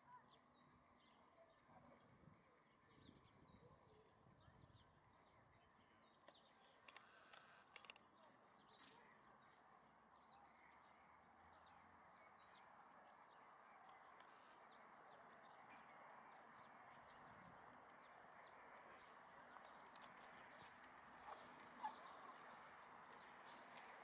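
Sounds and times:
faint clicks: 6.2 - 8.1.

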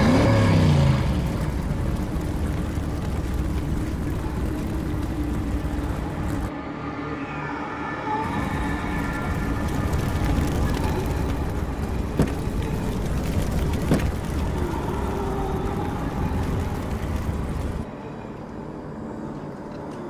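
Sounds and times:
car engine running: 0.0 - 6.5, 8.3 - 17.8.

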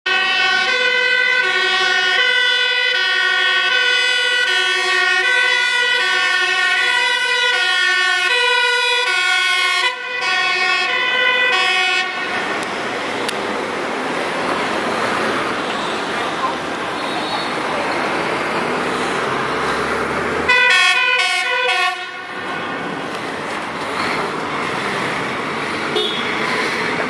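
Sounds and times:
road traffic noise: 0.0 - 27.0
two-tone siren: 0.1 - 12.4, 20.5 - 22.8.

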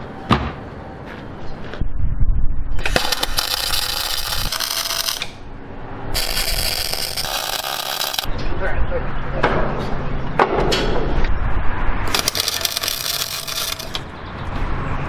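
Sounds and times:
welding arc crackling and spitting: 2.8 - 5.4, 6.2 - 8.3, 12.1 - 14.0.

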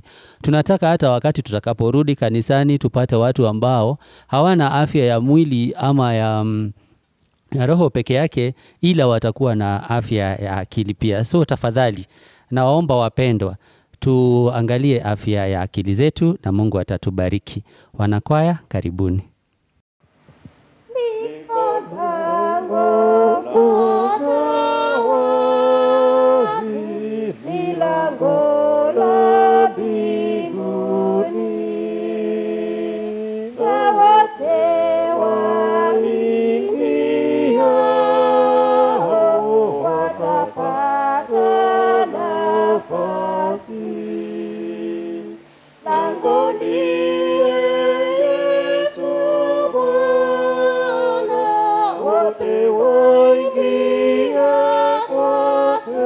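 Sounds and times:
small choir singing a hymn: 20.9 - 56.0.

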